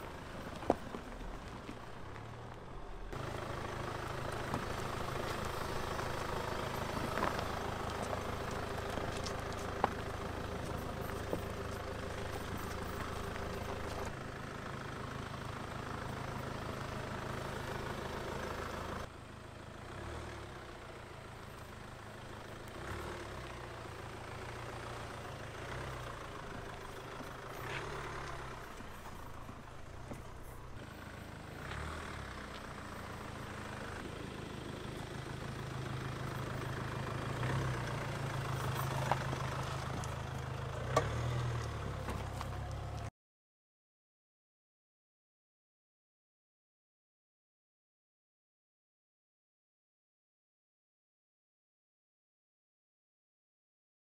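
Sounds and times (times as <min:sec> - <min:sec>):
tyres rolling on loose stones: 0:00.0 - 0:02.6, 0:03.2 - 0:14.2, 0:33.5 - 0:43.1
car engine running at low speed: 0:00.0 - 0:43.1.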